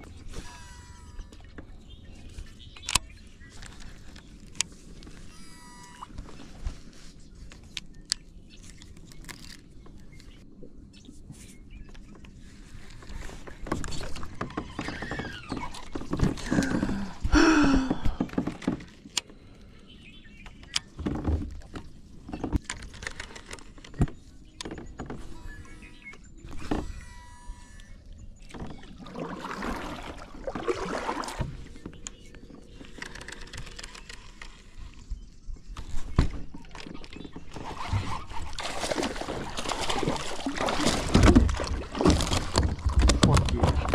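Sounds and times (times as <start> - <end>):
knocks and rustles on kayak hull: 11.2 - 19.3, 20.4 - 43.9.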